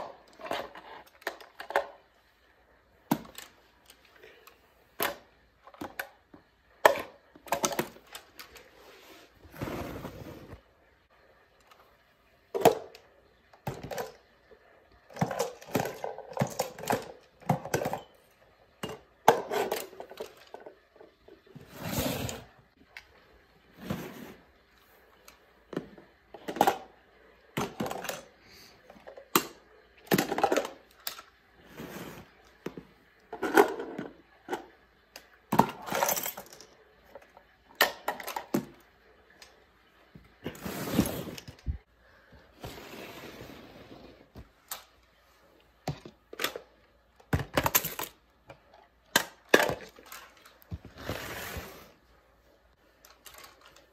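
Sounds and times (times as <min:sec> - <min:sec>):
plastic toys clinking on tile: 0:35.6 - 0:36.8, 0:53.0 - 0:53.9.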